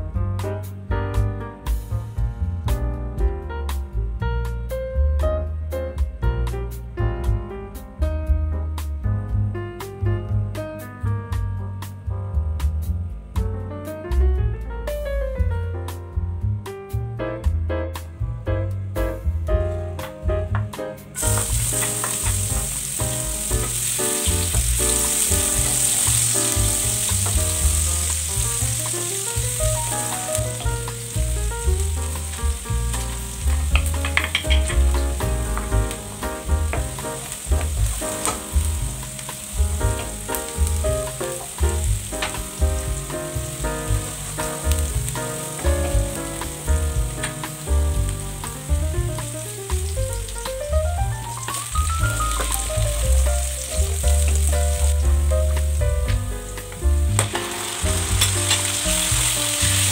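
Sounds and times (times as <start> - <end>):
background music: 0.0 - 59.9
oil sizzling in a frying pan: 21.1 - 59.9.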